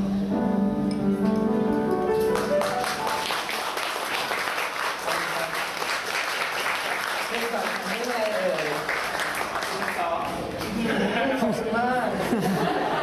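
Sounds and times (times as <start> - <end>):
acoustic song: 0.0 - 3.3
audience applause: 2.2 - 10.4.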